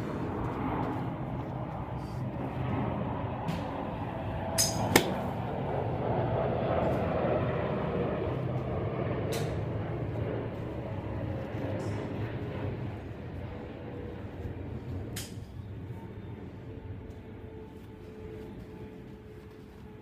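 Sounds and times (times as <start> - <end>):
golf club striking ball: 4.6 - 5.4.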